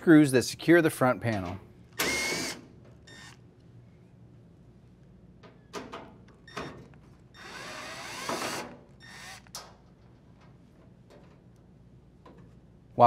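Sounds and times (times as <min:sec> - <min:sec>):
drill driver running: 0:02.0 - 0:03.4, 0:07.4 - 0:09.5.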